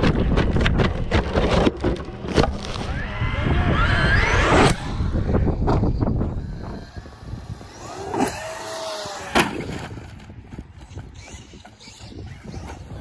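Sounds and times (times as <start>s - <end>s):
electric motor whining: 2.8s - 13.0s
toy truck hitting ground: 6.5s - 10.3s.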